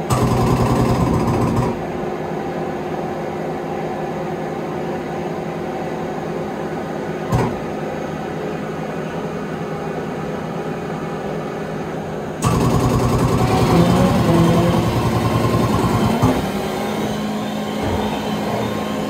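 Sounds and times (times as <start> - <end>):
machinery hum: 0.0 - 19.0
rough machine noise: 12.4 - 19.0
steady tones: 13.3 - 19.0.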